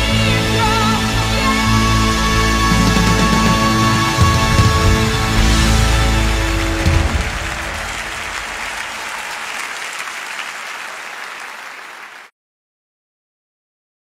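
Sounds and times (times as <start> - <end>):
musical chord: 1.0 - 9.0
audience applauding: 2.7 - 12.3.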